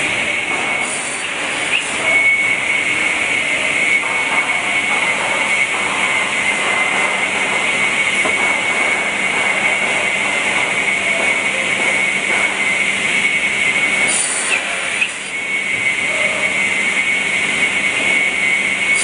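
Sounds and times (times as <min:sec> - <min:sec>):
machine running with hiss: 0:00.0 - 0:19.0
steady high whine: 0:00.0 - 0:19.0.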